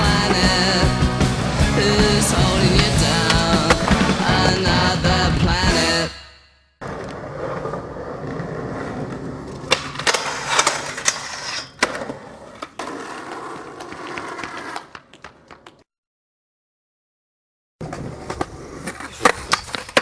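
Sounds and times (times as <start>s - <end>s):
skateboard wheels rolling on concrete: 0.0s - 5.0s, 6.8s - 15.9s, 17.8s - 20.0s
skateboard clacking and landing: 6.8s - 15.8s, 17.8s - 20.0s.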